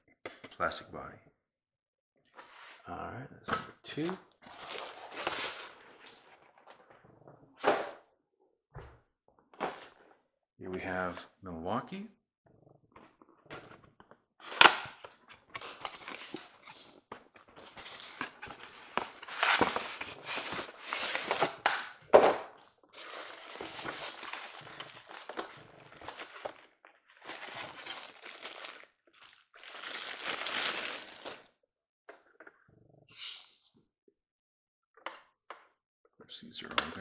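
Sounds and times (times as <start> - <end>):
cardboard rustling and crinkling: 4.4 - 5.9, 14.4 - 16.8, 17.6 - 21.7, 22.9 - 31.4.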